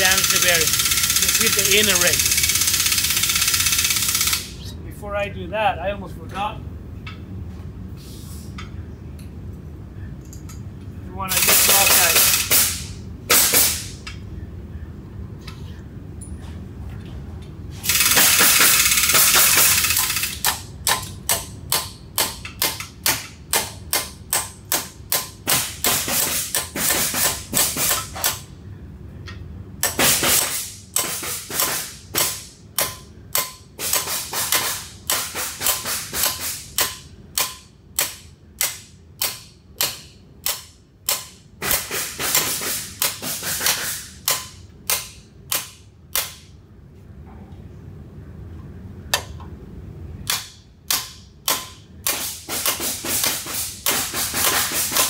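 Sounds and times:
loud continuous noise: 0.0 - 55.0
hammer striking metal: 50.3 - 55.0.

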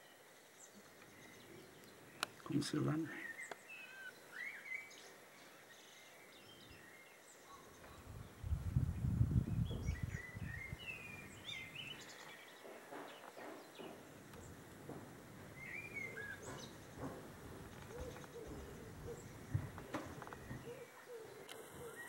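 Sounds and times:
songbirds singing: 0.0 - 22.0
low rumble on microphone: 7.9 - 12.0, 14.2 - 20.8
pigeon cooing: 17.8 - 22.0.

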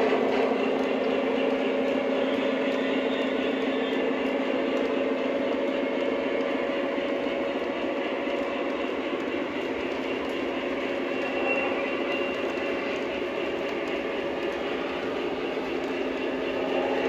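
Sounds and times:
model train motors humming: 0.0 - 17.0
wheels rolling on rail: 0.0 - 17.0.

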